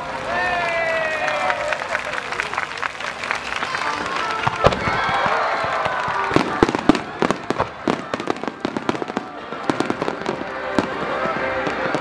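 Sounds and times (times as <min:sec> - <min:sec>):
fireworks bangs and bursts: 0:04.2 - 0:12.0.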